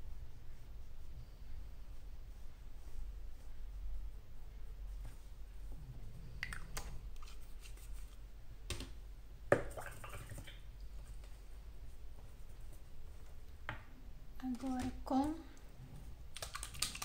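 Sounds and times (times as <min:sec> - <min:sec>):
paint pots clicking and knocking: 0:06.3 - 0:07.9, 0:16.2 - 0:17.0.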